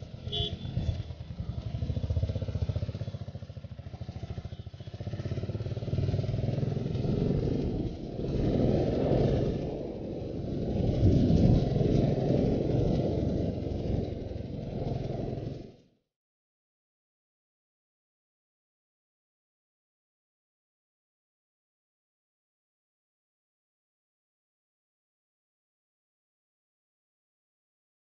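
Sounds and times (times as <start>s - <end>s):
wind noise: 0.0s - 2.8s, 5.2s - 15.7s
motorcycle engine running: 0.0s - 15.8s.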